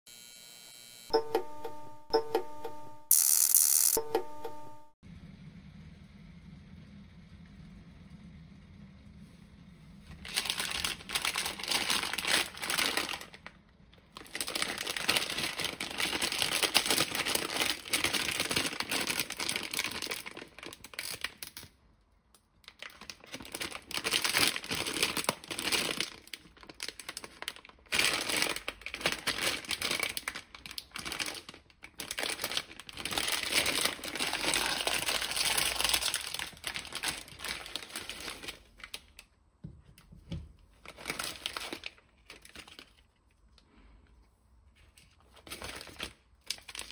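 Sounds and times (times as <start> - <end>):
plastic wrapper crinkling: 10.1 - 21.8, 22.6 - 39.4, 40.7 - 43.8, 44.7 - 46.9.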